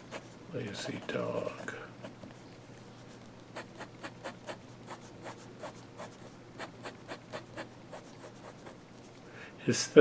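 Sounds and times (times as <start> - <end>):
fountain pen scratching on paper: 0.0 - 2.2, 3.5 - 8.8.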